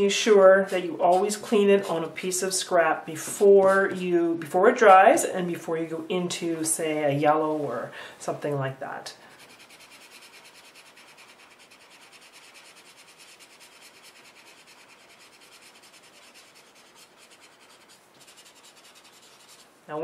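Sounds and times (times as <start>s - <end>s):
marker tip rubbing on paper: 9.4s - 19.7s.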